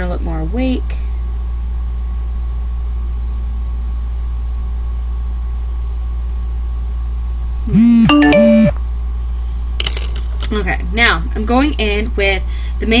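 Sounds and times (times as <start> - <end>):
steady low hum: 0.0 - 13.0
woman humming: 7.7 - 8.7.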